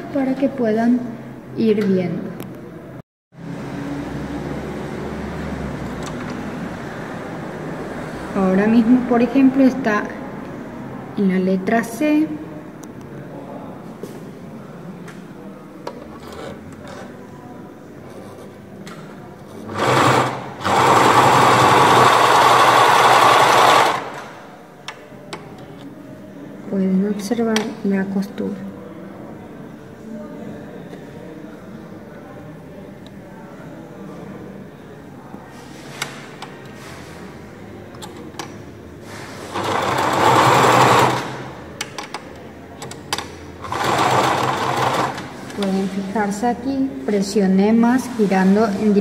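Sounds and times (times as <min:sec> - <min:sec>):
sewing machine stitching: 0:19.5 - 0:24.4, 0:39.1 - 0:41.6, 0:43.6 - 0:46.0.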